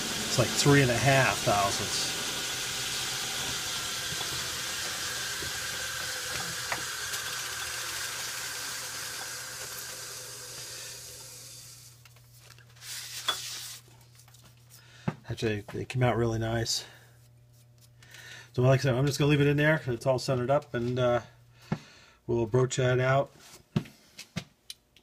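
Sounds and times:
lathe running: 0:00.0 - 0:11.9.

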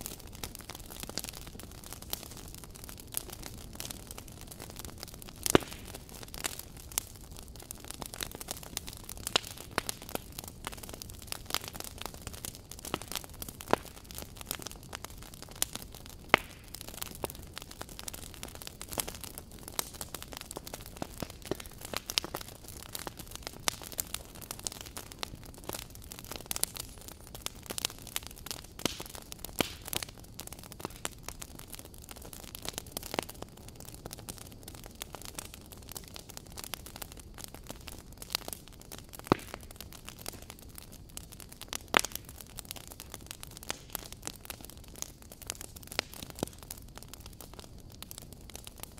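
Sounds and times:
fire crackling and popping: 0:00.0 - 0:48.9
steady fire hiss: 0:00.0 - 0:48.9.

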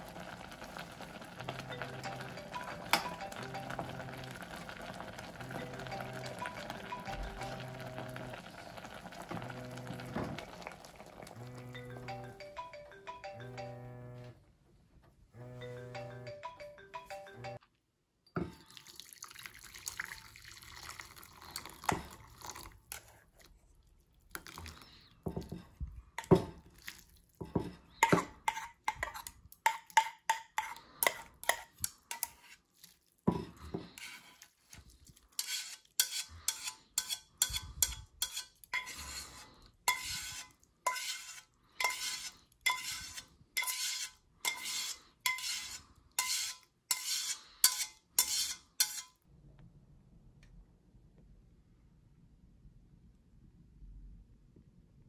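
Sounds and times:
noodles and broth pouring: 0:00.0 - 0:11.7, 0:18.6 - 0:25.5, 0:26.6 - 0:27.4
music: 0:01.4 - 0:08.5, 0:11.4 - 0:14.3, 0:15.4 - 0:17.6
chopsticks scraping a metal pot: 0:27.6 - 0:49.2.

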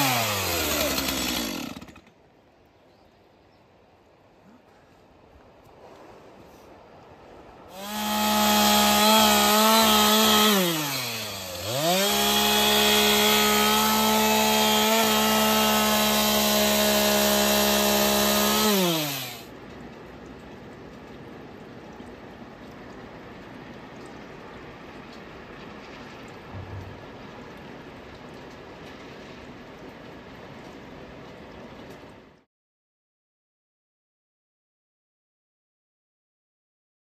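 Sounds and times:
chainsaw revving: 0:00.0 - 0:02.1, 0:07.7 - 0:19.5.

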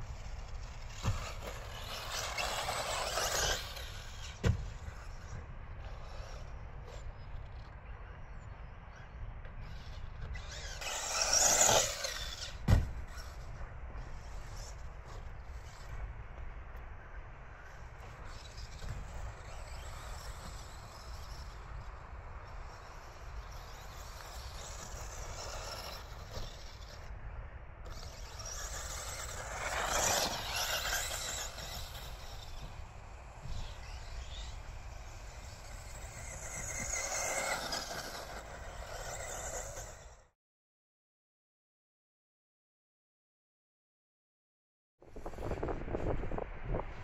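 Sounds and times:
toy car motor whining: 0:00.2 - 0:05.2, 0:09.6 - 0:13.5, 0:18.0 - 0:27.1, 0:27.8 - 0:40.3
toy car landing thud: 0:10.9 - 0:13.0.

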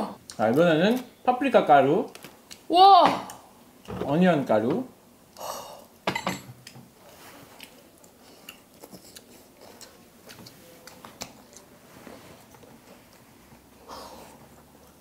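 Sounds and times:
chewing: 0:06.6 - 0:15.0.

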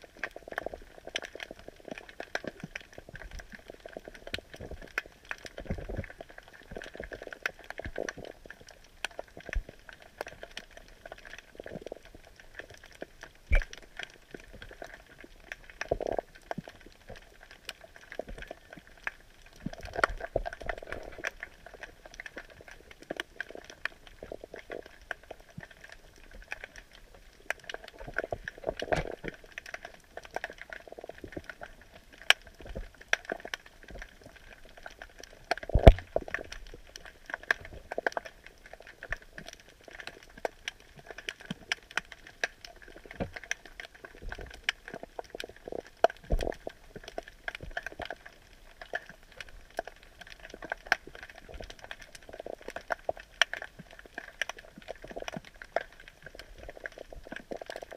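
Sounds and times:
underwater clicks and pops: 0:13.4 - 0:15.0, 0:27.7 - 0:30.5, 0:34.8 - 0:38.3, 0:39.1 - 0:43.6, 0:44.2 - 0:49.1.

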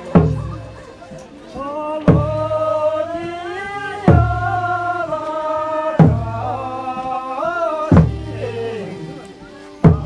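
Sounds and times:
heavy drum beat: 0:00.0 - 0:00.9, 0:02.0 - 0:05.1, 0:05.8 - 0:06.9, 0:07.8 - 0:09.2, 0:09.8 - 0:10.0
slow sung chant: 0:01.5 - 0:10.0.

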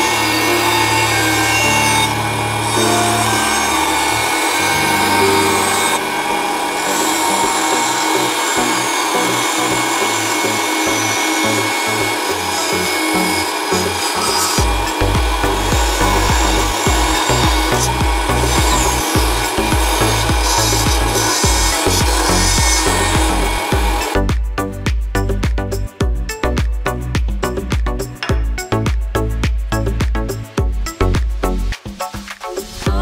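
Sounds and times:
power saw cutting wood: 0:00.0 - 0:24.3.

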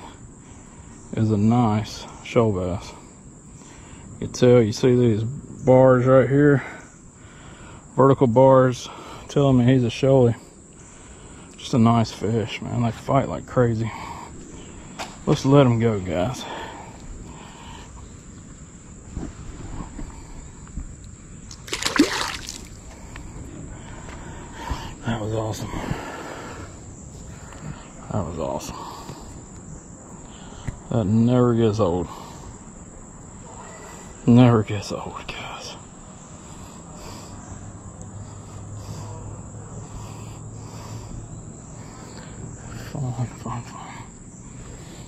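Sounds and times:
insects pulsing call: 0:00.0 - 0:45.0
fish splashing into water: 0:21.5 - 0:22.8.

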